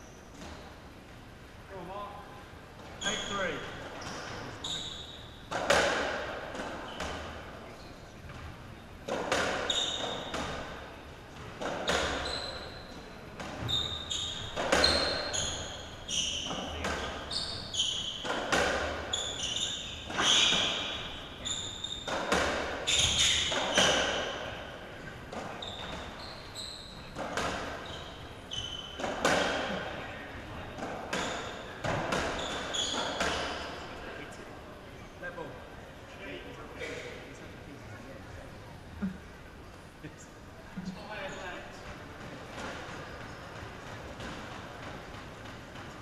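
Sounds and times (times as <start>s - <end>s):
shoes squeaking on court floor: 0.0s - 0.8s, 2.8s - 34.1s, 40.8s - 46.0s
ball hitting rackets and walls: 2.8s - 7.5s, 8.3s - 12.8s, 13.4s - 30.0s, 30.6s - 33.9s, 41.8s - 46.0s.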